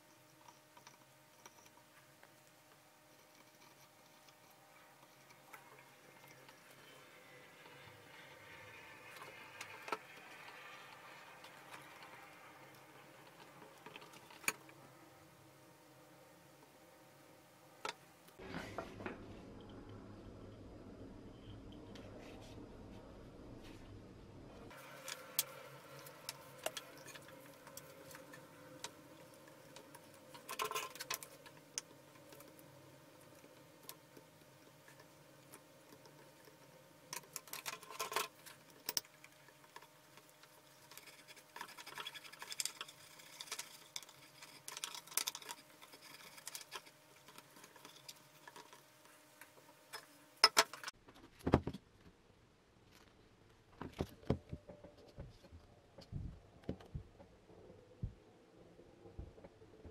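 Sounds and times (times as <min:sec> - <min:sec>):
cable clicks and rustles: 0:24.7 - 0:52.2.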